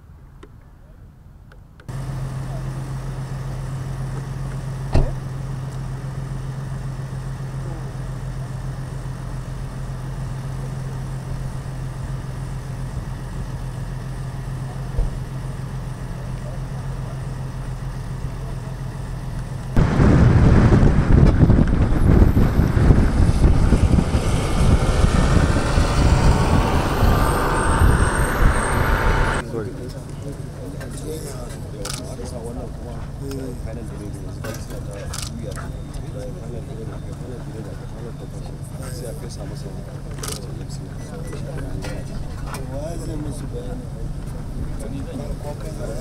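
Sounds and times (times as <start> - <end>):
rough vehicle noise: 1.5 - 46.0
low engine hum: 1.8 - 46.0.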